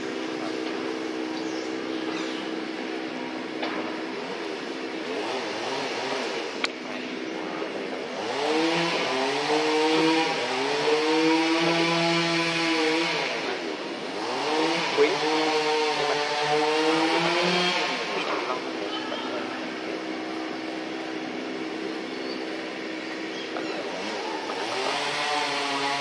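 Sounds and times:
vehicle engine running: 0.0s - 26.0s.

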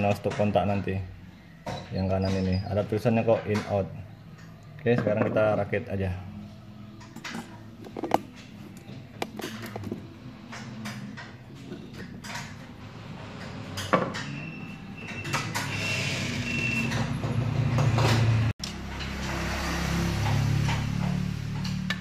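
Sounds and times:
plastic clicks and knocks: 7.2s - 8.3s.

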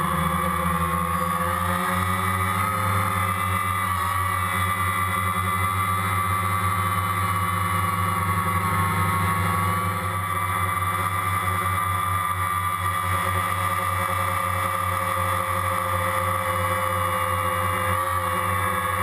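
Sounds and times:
drone propellers whining: 0.0s - 19.0s.

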